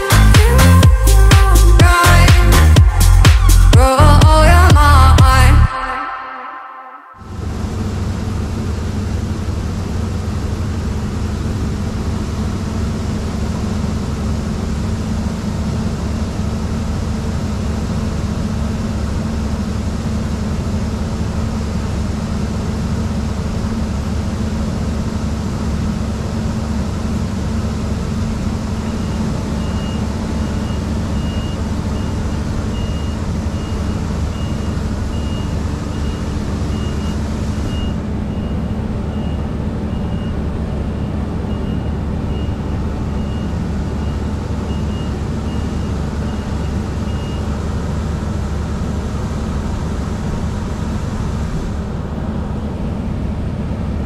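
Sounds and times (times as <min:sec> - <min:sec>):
combine harvester engine drone: 0:00.0 - 0:06.1, 0:07.2 - 0:54.0
tractor engine: 0:07.2 - 0:54.0
high electronic beeps: 0:28.9 - 0:47.5.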